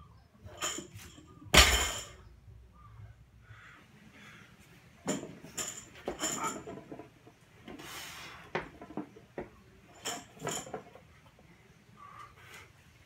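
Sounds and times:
barbell clinks and rattles: 0.5 - 2.2, 5.1 - 7.1, 9.9 - 11.0.

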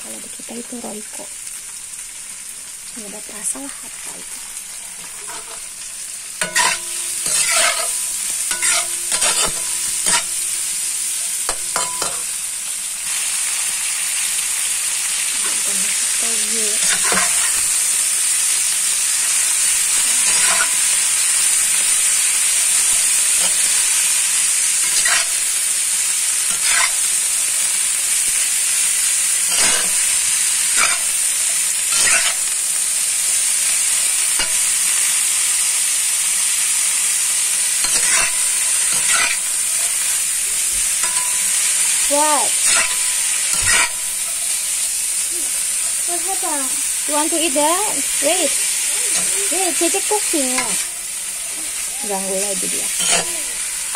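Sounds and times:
stir-fry sizzling in a wok: 0.0 - 53.9
spatula scraping a wok: 4.8 - 12.4, 15.2 - 18.1, 19.3 - 27.3, 28.2 - 32.9, 37.3 - 45.2, 52.5 - 53.9.

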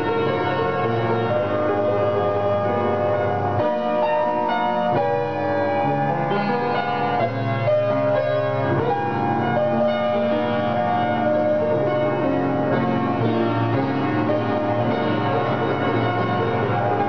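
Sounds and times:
piano chords: 0.0 - 17.0.

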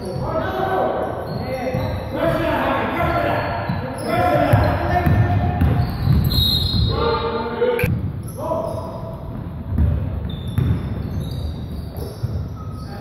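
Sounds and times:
shoe squeaks: 0.0 - 2.4, 3.5 - 5.0, 5.6 - 7.4, 10.2 - 13.0
basketball bouncing on hardwood: 9.8 - 10.9.

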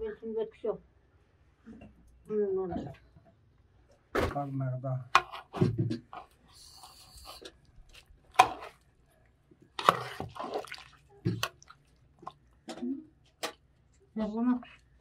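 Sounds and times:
sharp splashes: 9.8 - 12.4
water pouring: 9.8 - 12.5.

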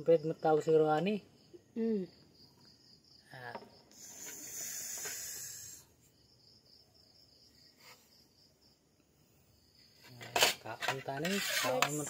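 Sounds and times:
crickets chirping: 0.0 - 12.0
hissing noise: 3.9 - 5.9.

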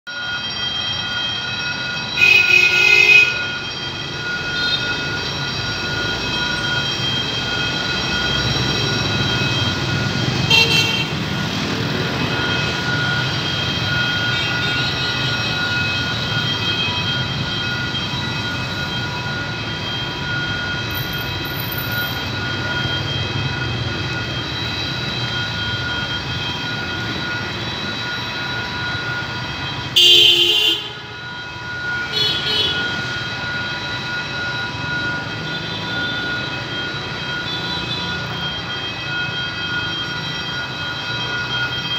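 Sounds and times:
level-crossing warning alarm: 0.1 - 41.9
low rumble of traffic: 0.1 - 41.9
loud train horn blast: 2.2 - 3.4, 10.5 - 11.2
approaching train: 3.3 - 30.0, 31.0 - 32.1, 32.7 - 41.9.

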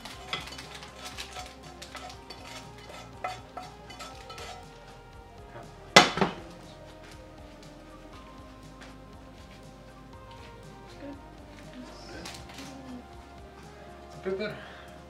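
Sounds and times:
wooden spoon scraping pan: 0.0 - 4.9.

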